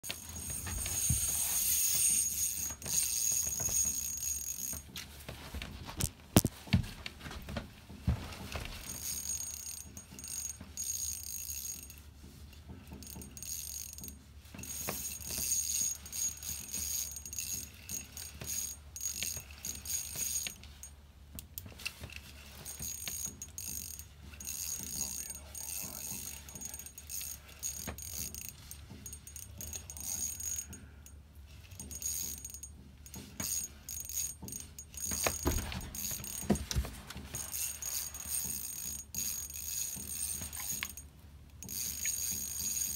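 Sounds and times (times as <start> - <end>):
fishing reel drag ratcheting: 0.1 - 4.9, 8.8 - 12.0, 12.9 - 20.9, 22.6 - 35.4, 36.0 - 36.5, 37.4 - 41.0, 41.6 - 42.9.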